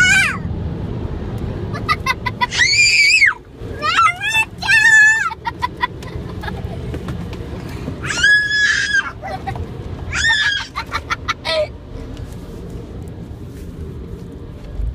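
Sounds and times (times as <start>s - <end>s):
children shrieking and squealing: 0.0s - 0.5s, 2.3s - 5.4s, 8.0s - 11.7s
vehicle rumble from inside: 0.0s - 14.9s.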